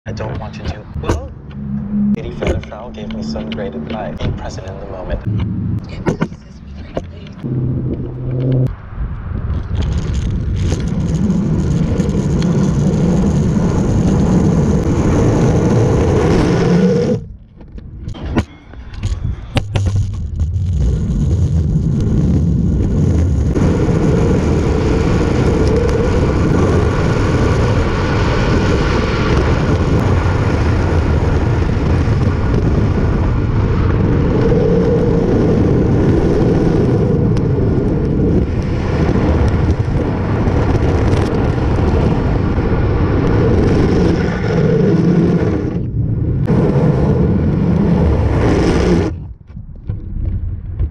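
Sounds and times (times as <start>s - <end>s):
wheels rolling over rough asphalt: 9.2s - 18.1s, 18.8s - 50.9s.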